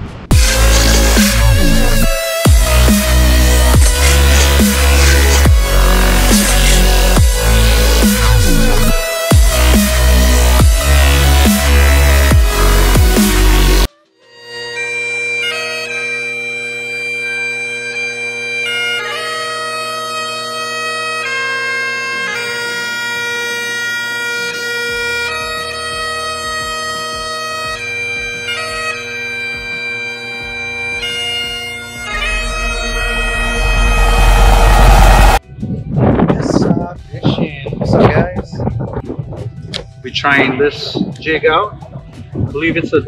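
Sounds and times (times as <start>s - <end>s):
bagpipe lament: 0.3s - 35.4s
low rumbling noise: 32.1s - 35.4s.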